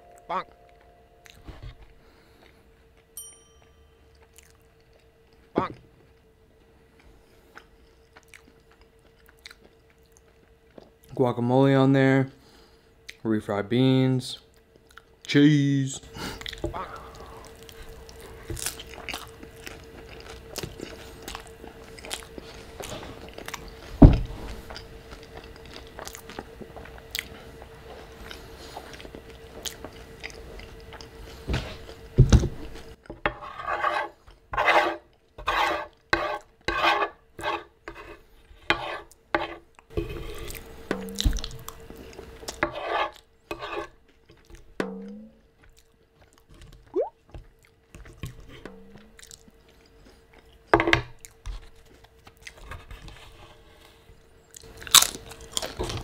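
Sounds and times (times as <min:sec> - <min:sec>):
wet chewing: 0:04.1 - 0:05.4, 0:07.0 - 0:11.1, 0:16.4 - 0:23.9, 0:24.6 - 0:32.0, 0:45.5 - 0:48.1, 0:48.9 - 0:52.6
crunchy shell crackling while chewing: 0:04.1 - 0:11.2, 0:16.3 - 0:33.2, 0:45.4 - 0:53.2, 0:53.8 - 0:56.0
fork scraping wooden board: 0:33.3 - 0:40.6, 0:42.6 - 0:43.9.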